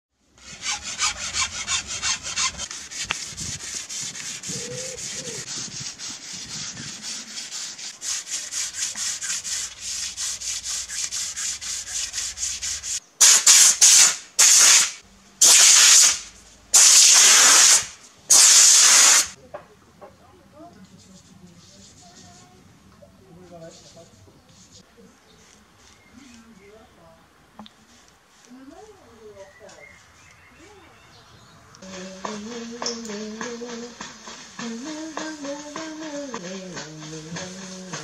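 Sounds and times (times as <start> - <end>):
wooden pole being sanded and filed: 0.4 - 13.0.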